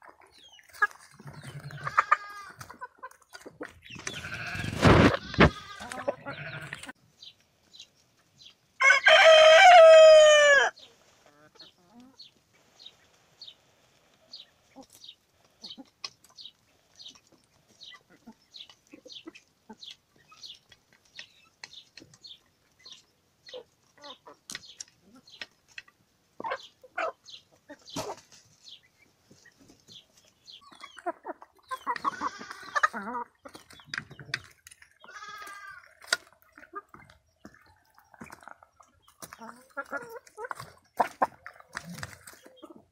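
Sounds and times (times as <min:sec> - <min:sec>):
chickens squawking: 0:00.0 - 0:07.0, 0:08.8 - 0:13.1, 0:22.8 - 0:25.5, 0:26.4 - 0:42.9
chickens pecking from a pan: 0:00.0 - 0:10.4, 0:11.1 - 0:42.9.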